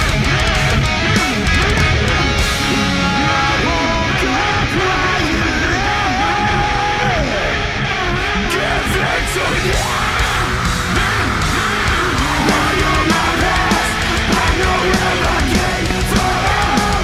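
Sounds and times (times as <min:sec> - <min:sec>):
electric guitar: 0:00.0 - 0:17.0
hard rock music: 0:00.0 - 0:17.0
person singing: 0:01.5 - 0:17.0.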